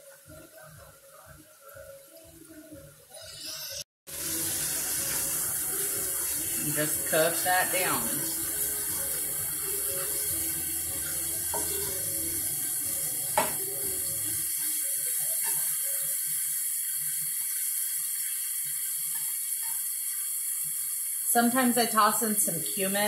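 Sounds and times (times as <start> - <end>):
meat sizzling in a skillet: 3.2 - 23.0
spatula stirring: 4.7 - 14.1.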